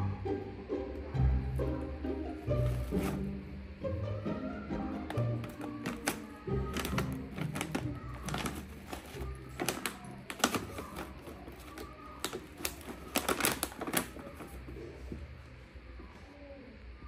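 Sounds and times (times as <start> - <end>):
bag crinkling: 5.4 - 14.7.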